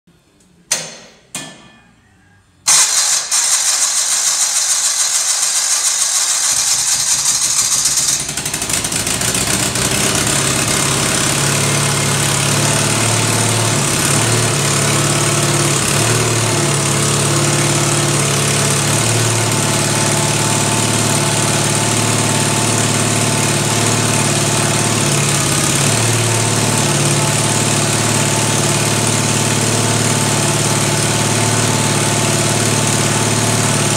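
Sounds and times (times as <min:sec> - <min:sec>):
starter cranking with loud hiss: 0:02.7 - 0:33.9
tractor engine running: 0:02.7 - 0:33.9.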